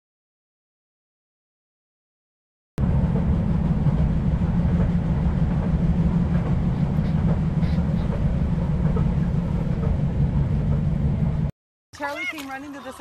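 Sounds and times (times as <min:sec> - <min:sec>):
subway train rumbling: 0:02.8 - 0:11.5.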